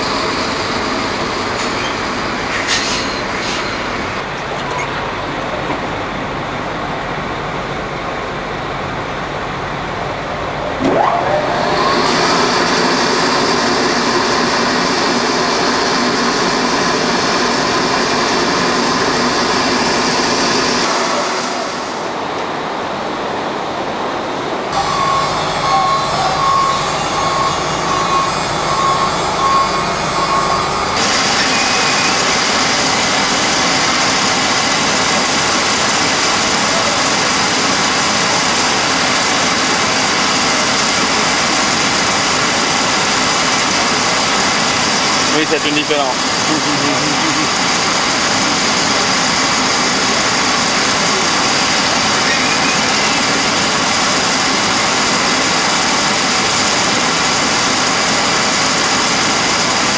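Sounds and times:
loading chute machinery hum: 0.0 - 23.0, 24.8 - 59.9
high beeps: 24.8 - 32.1.

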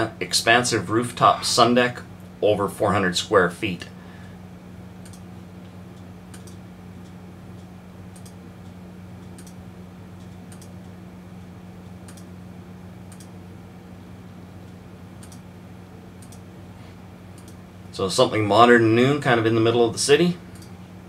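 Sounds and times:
low electrical hum: 0.0 - 21.0
computer mouse clicks: 5.0 - 5.3, 6.3 - 8.4, 9.2 - 9.6, 10.2 - 10.8, 12.0 - 12.3, 13.1 - 13.3, 15.2 - 15.4, 16.2 - 16.4, 17.4 - 17.6.

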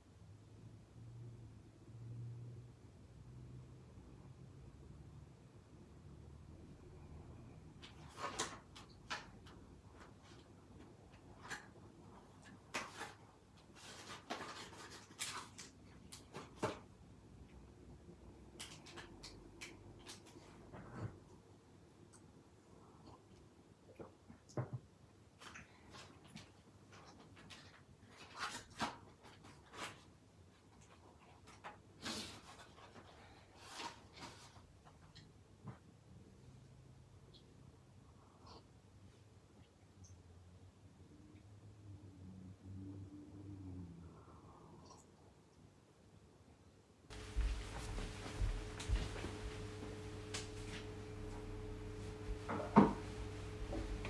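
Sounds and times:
cardboard and paper crinkling: 12.7 - 16.8.

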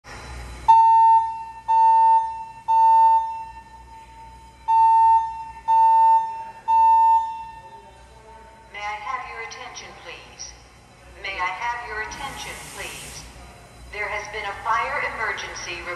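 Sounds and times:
fire alarm high-pitched beeps: 0.6 - 7.8.

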